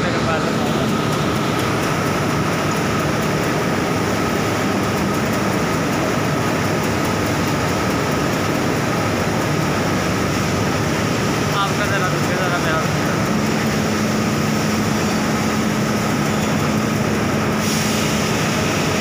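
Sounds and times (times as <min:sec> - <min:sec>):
industrial machinery noise: 0:00.0 - 0:19.0.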